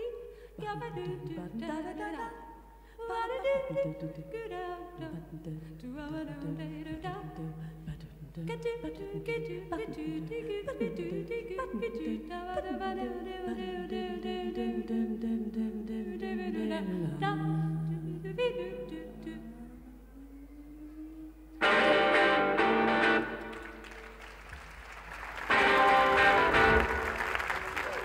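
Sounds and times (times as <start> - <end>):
voices humming and singing: 3.4 - 22.1.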